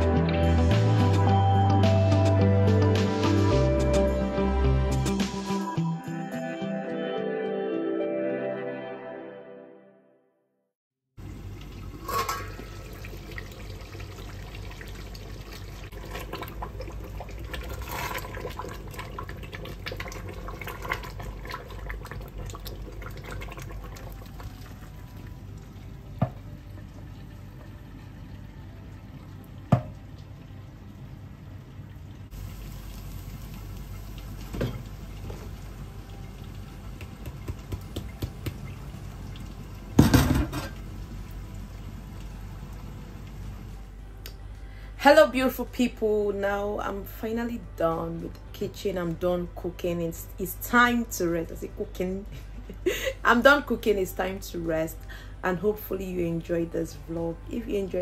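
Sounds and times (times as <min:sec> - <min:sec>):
steady cooking hiss: 0:32.3 - 0:44.0.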